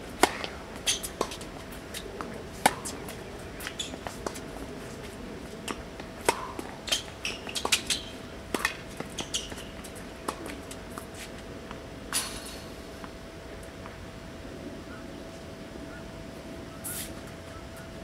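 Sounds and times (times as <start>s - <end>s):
faint steady hum: 0.0s - 18.0s
racket striking tennis ball: 0.2s - 1.4s, 5.7s - 9.6s.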